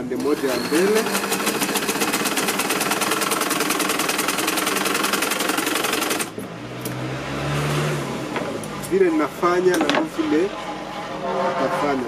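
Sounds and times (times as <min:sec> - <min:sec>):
sewing machine stitching: 0:00.0 - 0:06.3.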